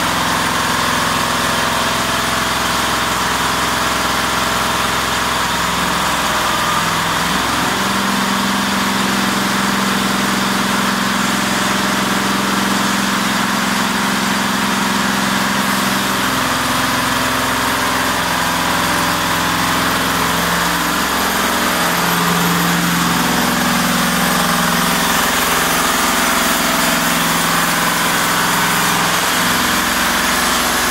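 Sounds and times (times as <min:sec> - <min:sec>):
diesel engine running: 0:00.0 - 0:30.9
band saw blade cutting wood: 0:16.1 - 0:30.9.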